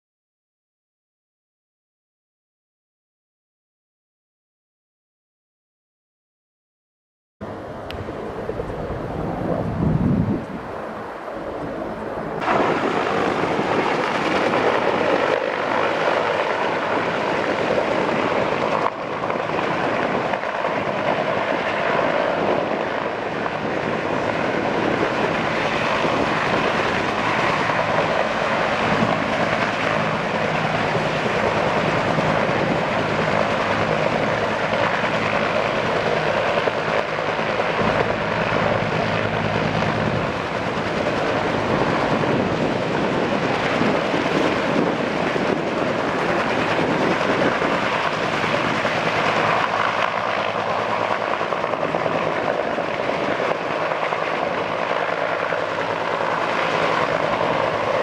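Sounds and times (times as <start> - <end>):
helicopter rotor and turbine noise: 7.4 - 58.0.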